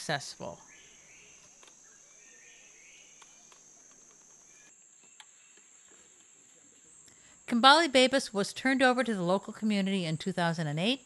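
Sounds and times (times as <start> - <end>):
high-pitched insect drone: 0.0 - 5.6
faint chirps: 0.0 - 7.5.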